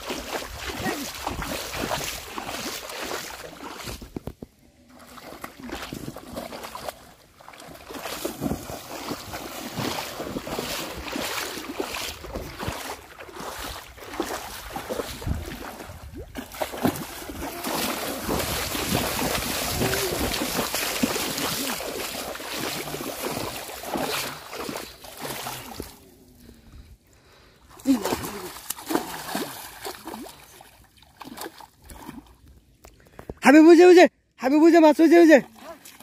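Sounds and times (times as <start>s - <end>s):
splashing through shallow water: 0.0s - 26.5s, 27.7s - 33.2s, 35.0s - 36.0s
wind noise on microphone: 12.1s - 17.5s, 18.2s - 21.2s.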